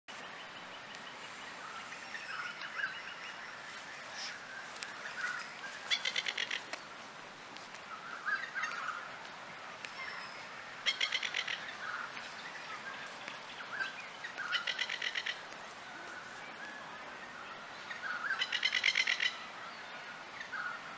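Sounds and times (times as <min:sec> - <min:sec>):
bird harsh rattling calls: 0:05.3 - 0:06.7, 0:10.8 - 0:12.0, 0:14.4 - 0:15.4, 0:18.2 - 0:19.4.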